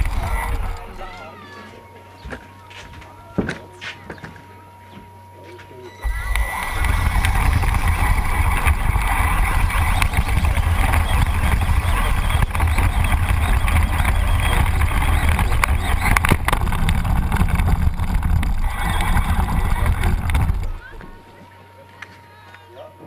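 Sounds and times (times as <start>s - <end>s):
toy truck rumbling and rattling: 0.0s - 1.3s, 6.0s - 21.3s.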